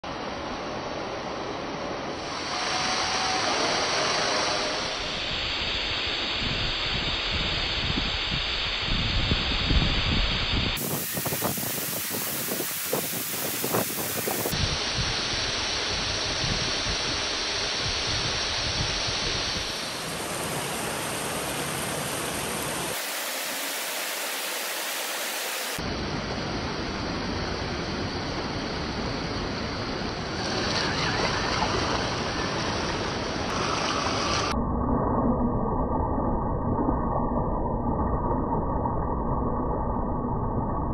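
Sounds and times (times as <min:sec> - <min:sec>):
waterfall rushing: 0:10.8 - 0:14.6, 0:19.6 - 0:25.8.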